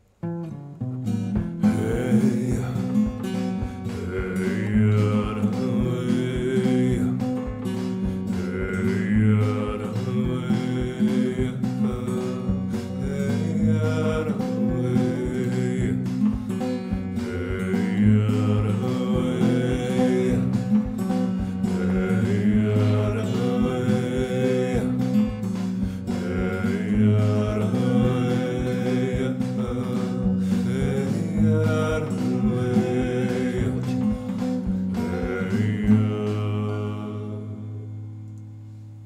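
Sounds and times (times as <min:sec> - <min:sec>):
plucked guitar: 0:00.0 - 0:39.0
steady drum beat: 0:01.3 - 0:37.0
person chanting: 0:03.9 - 0:07.2, 0:08.4 - 0:16.0, 0:17.3 - 0:20.6, 0:21.7 - 0:25.1, 0:26.1 - 0:37.8.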